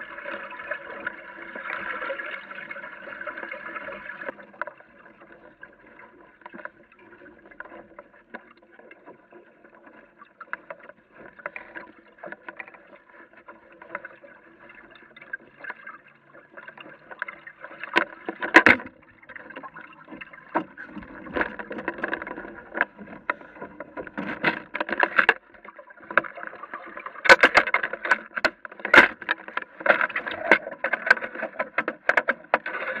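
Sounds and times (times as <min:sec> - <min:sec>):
water lapping against a hull: 0:00.0 - 0:33.0.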